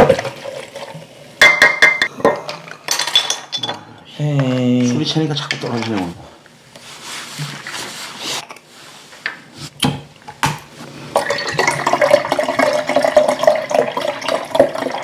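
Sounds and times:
liquid pouring over ice: 11.2 - 15.0.

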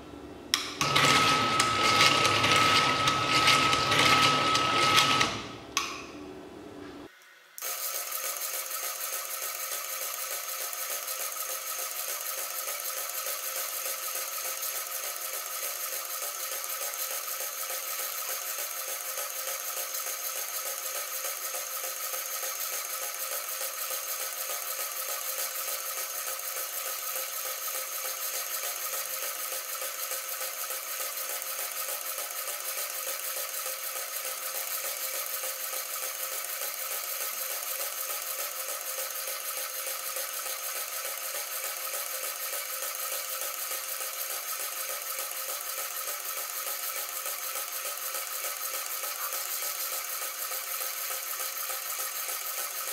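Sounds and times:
stepper motor whirring: 0.8 - 5.6.

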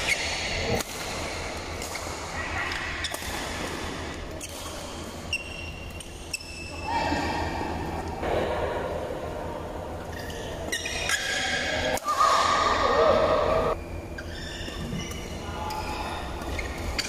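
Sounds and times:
racket hitting shuttlecock: 3.0 - 4.9.

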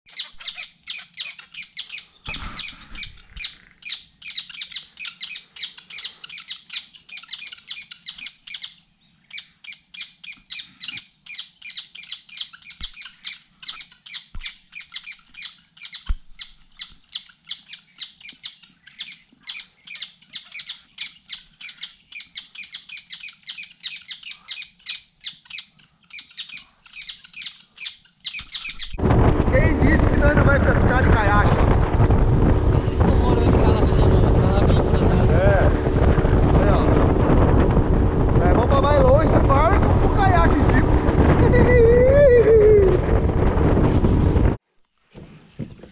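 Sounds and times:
birds calling: 0.0 - 29.0.

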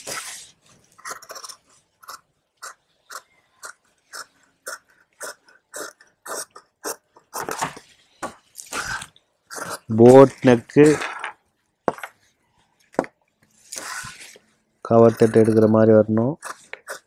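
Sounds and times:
shears snipping fabric: 15.0 - 17.0.

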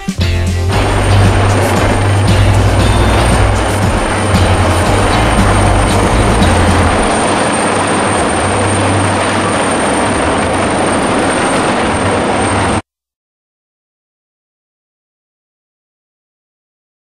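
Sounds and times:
helicopter hovering: 0.0 - 12.8.

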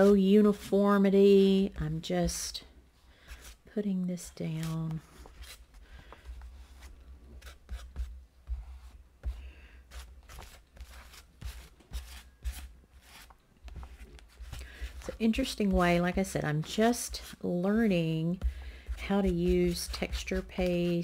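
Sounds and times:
palette knife scraping paper: 4.5 - 5.7, 6.6 - 21.0.

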